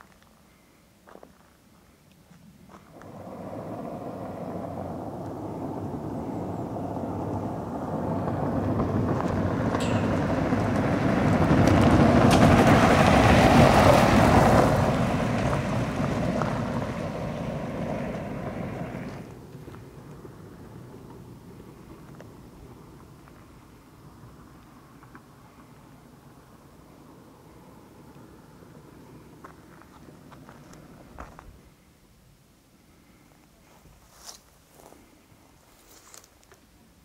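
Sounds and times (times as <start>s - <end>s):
car driving past on gravel: 2.7s - 31.7s.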